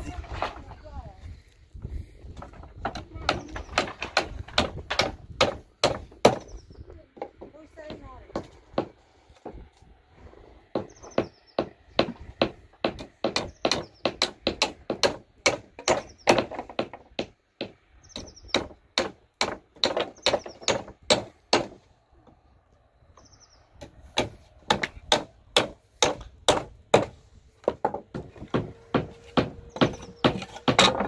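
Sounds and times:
hammer driving nails into wood: 23.8 - 31.0.

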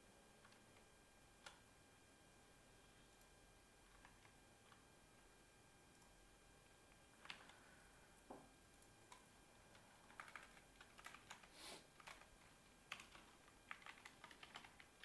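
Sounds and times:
typing on computer keyboard: 3.9 - 4.8, 7.2 - 7.6, 9.1 - 15.0.

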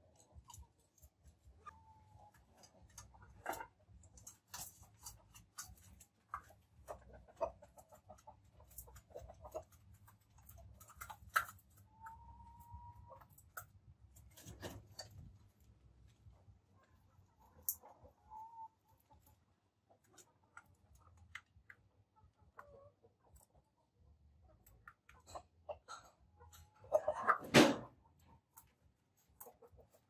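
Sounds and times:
chickens clucking: 0.0 - 30.0
chickens pecking on metal bowl: 0.0 - 30.0
chicken drawn-out call: 26.0 - 27.5.

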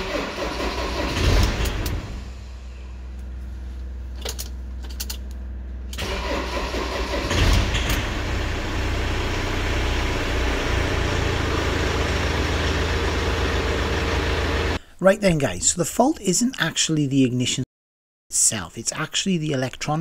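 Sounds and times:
van engine cranking and idling: 0.0 - 3.3, 3.9 - 14.8.

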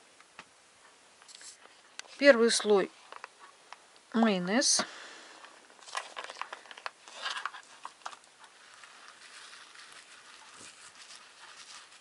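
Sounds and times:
plastic pouch crinkling: 5.4 - 12.0.

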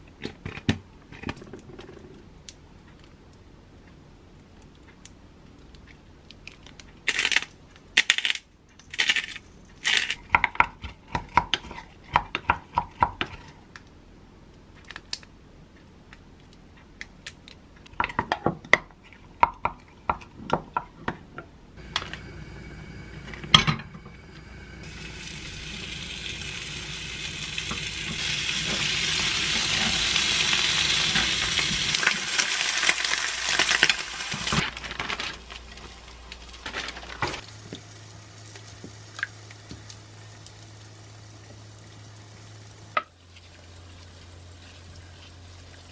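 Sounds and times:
meat sizzling in a pan: 24.8 - 34.6.

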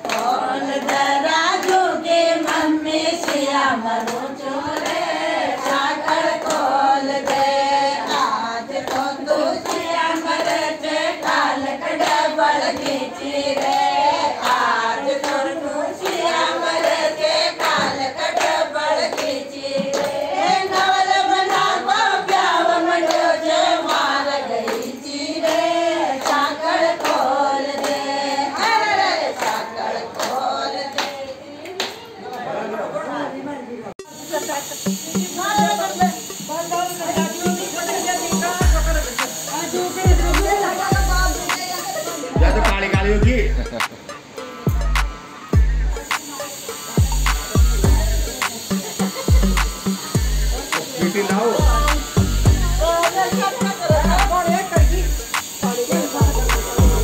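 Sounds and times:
hand clapping: 0.0 - 21.7, 22.3 - 28.8, 29.4 - 32.1, 38.3 - 41.9, 44.8 - 45.2, 46.0 - 46.3, 47.0 - 57.0
women singing together: 0.0 - 33.5, 36.7 - 43.2, 51.5 - 57.0.

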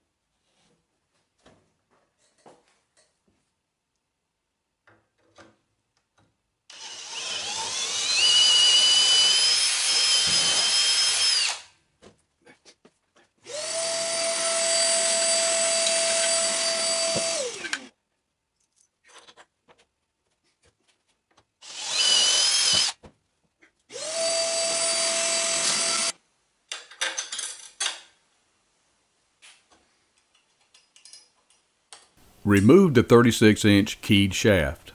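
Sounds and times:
cordless drill whining: 6.7 - 11.7, 13.4 - 17.9, 21.6 - 23.0, 23.9 - 26.1.

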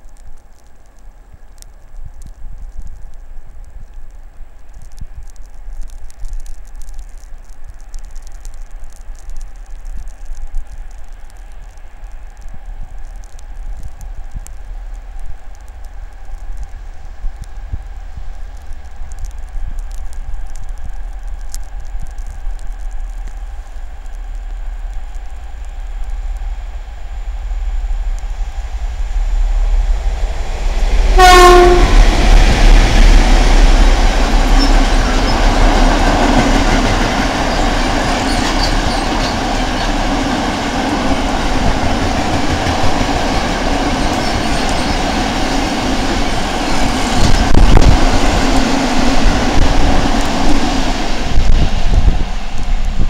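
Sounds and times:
train wheel clatter: 30.2 - 53.0
locomotive horn blast: 31.1 - 32.1.

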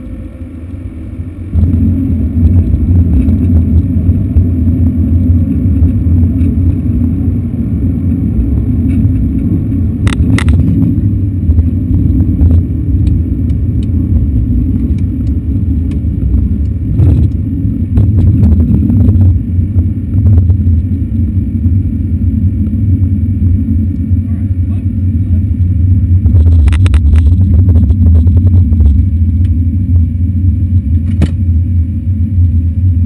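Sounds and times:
aircraft cockpit rumble: 0.0 - 33.0.

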